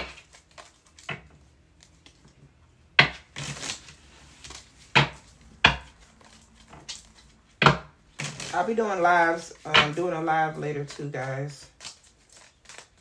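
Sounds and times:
cards being shuffled: 0.0s - 2.4s, 3.1s - 13.0s.

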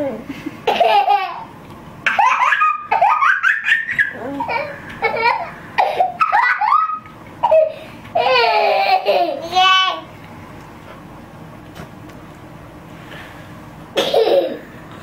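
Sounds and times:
baby squealing laughter: 2.1s - 9.4s.

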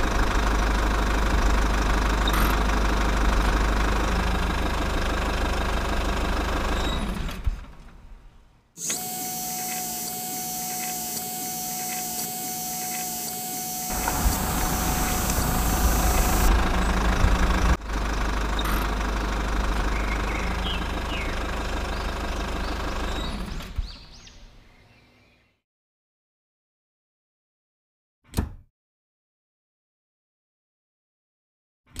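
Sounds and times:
engine running steadily: 0.0s - 7.4s, 13.9s - 23.6s
thin steady whine: 9.0s - 17.8s.

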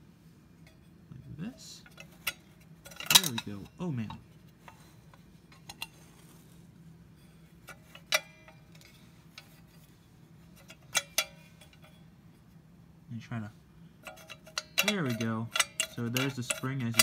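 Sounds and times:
metal clicks and clinks: 1.8s - 4.9s, 5.5s - 6.0s, 7.6s - 9.7s, 10.6s - 12.0s, 14.0s - 17.0s.

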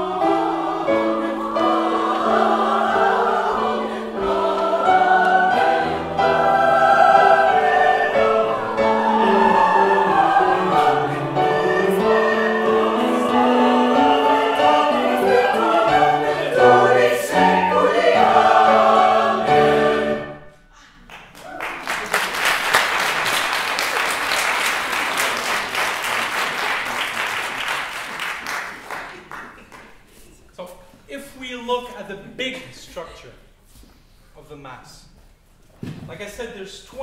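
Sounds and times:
grand piano accompaniment: 0.0s - 20.6s
mixed choir singing: 0.0s - 20.6s
audience applauding: 21.0s - 30.0s.

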